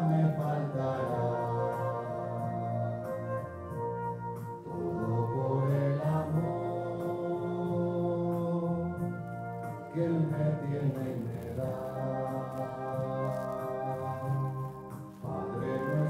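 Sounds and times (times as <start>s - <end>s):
instrumental accompaniment: 0.0s - 16.0s
slow hymn singing: 0.0s - 16.0s.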